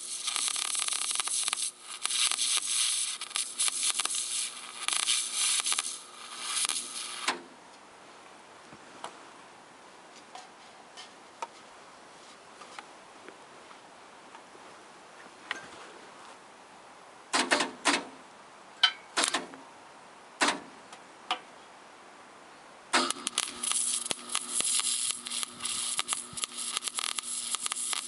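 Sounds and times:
welding arc crackling: 0.0s - 7.4s, 23.0s - 28.0s.

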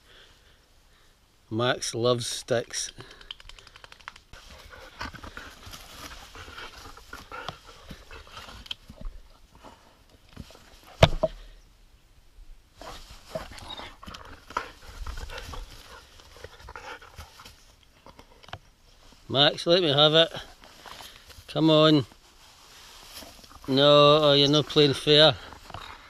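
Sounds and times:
dog panting: 4.4s - 8.6s, 12.8s - 17.5s.

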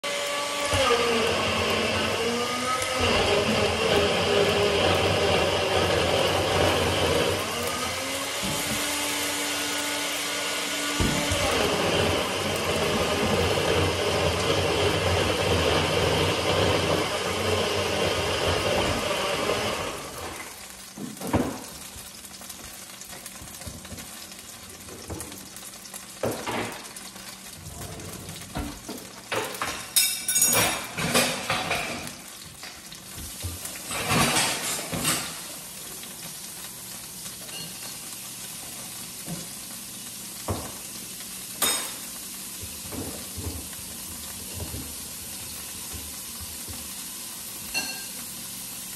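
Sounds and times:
pancake sizzling in a pan: 0.0s - 48.9s
utensils knocking and clattering: 28.5s - 32.1s, 33.4s - 35.4s.

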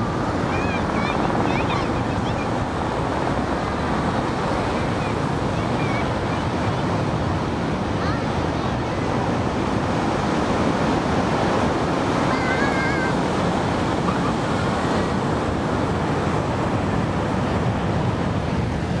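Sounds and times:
surf breaking on beach: 0.0s - 19.0s
wind on microphone: 0.0s - 19.0s.

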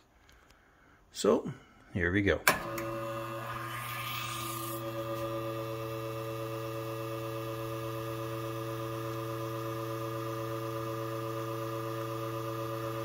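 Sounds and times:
espresso machine pump humming: 2.6s - 13.0s.

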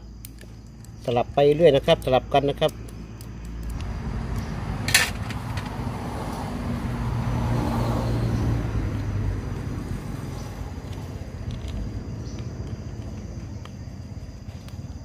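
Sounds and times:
vehicle passing by: 3.7s - 12.4s.

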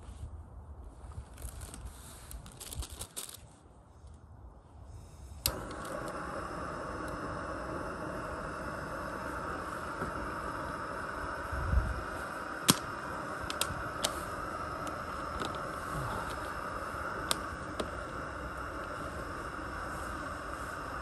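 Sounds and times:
gas stove hissing: 4.9s - 21.0s.

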